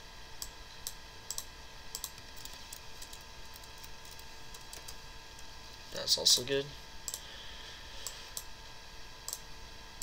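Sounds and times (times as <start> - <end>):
computer whine: 0.0 - 10.0
keyboard typing: 1.3 - 5.0.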